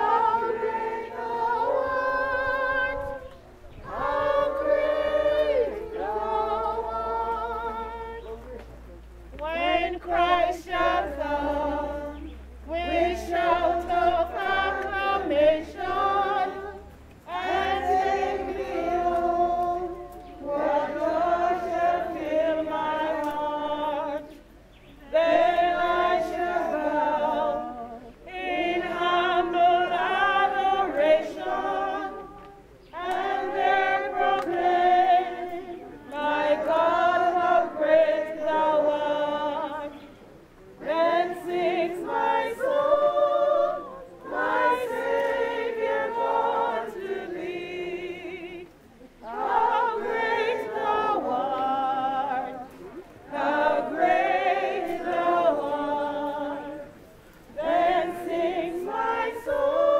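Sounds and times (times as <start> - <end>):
group singing unaccompanied: 0.0 - 8.6, 9.4 - 59.9.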